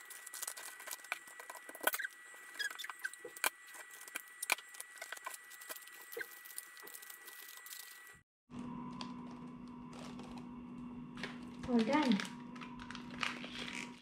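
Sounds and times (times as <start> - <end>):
wrapping paper rustling and crinkling: 0.0 - 8.2, 9.0 - 10.5, 11.2 - 14.0.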